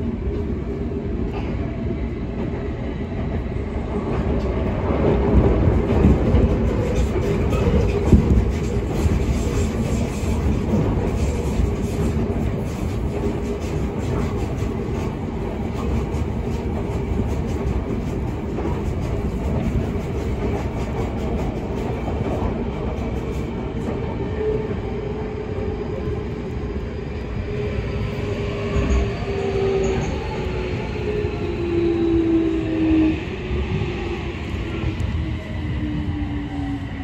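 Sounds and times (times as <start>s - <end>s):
train passing alongside: 0.0s - 37.0s
train wheels on rails: 0.0s - 37.0s.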